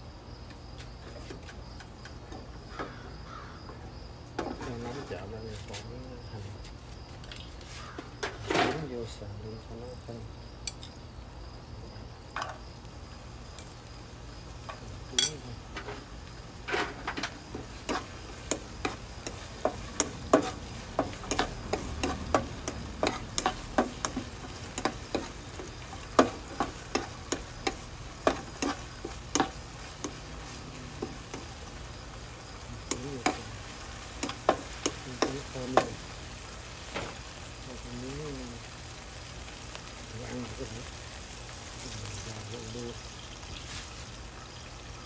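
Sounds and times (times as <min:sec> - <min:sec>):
food frying in a wok: 0:10.3 - 0:45.0
spatula scraping a pan: 0:15.2 - 0:35.9.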